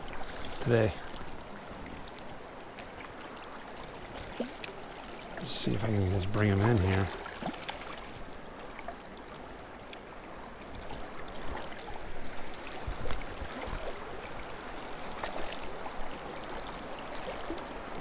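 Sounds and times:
river current gurgling: 0.0s - 18.0s
small splashes and knocks: 4.0s - 9.0s, 14.9s - 16.6s.

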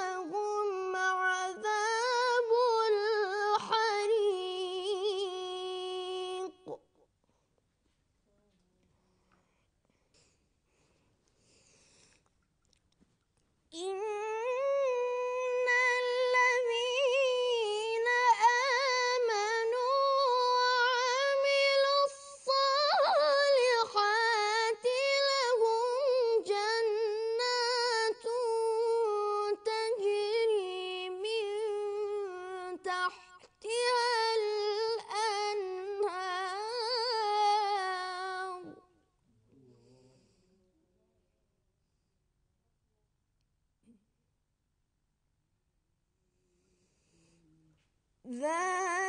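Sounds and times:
boy reciting melodically: 0.0s - 6.8s, 13.7s - 38.9s, 48.3s - 49.0s.

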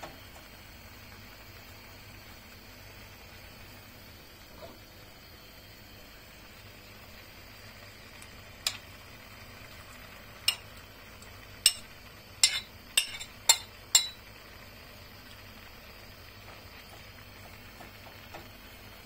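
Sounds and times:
utensil knocking on pan: 11.6s - 14.2s.

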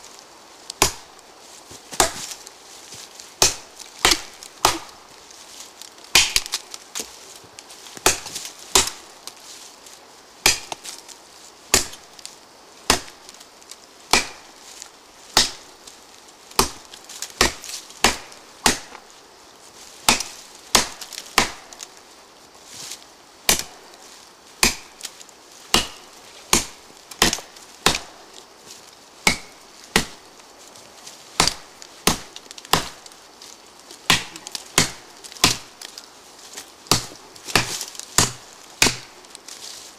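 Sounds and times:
machete chopping into tree trunk: 0.8s - 1.1s, 1.9s - 2.4s, 3.4s - 5.0s, 6.1s - 7.1s, 8.0s - 9.0s, 10.4s - 10.9s, 11.7s - 12.0s, 12.9s - 13.2s, 14.1s - 14.5s, 15.3s - 15.6s, 16.6s - 19.0s, 20.0s - 21.8s, 23.5s - 23.8s, 24.6s - 25.1s, 25.7s - 28.2s, 29.2s - 30.2s, 31.4s - 33.1s, 34.1s - 35.7s, 36.9s - 39.2s.

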